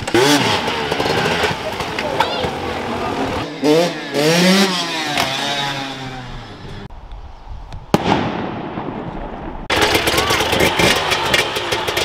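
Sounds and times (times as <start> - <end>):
dirt bike engines revving: 0.0 - 6.9, 9.7 - 12.0.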